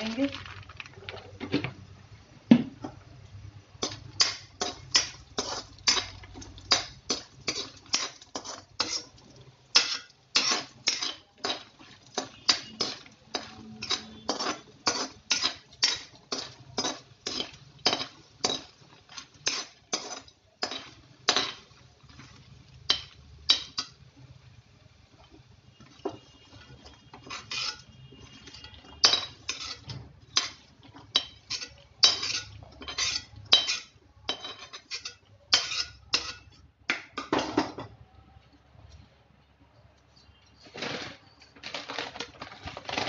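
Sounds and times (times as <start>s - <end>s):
spatula scraping metal pan: 3.8s - 24.0s, 25.7s - 36.7s.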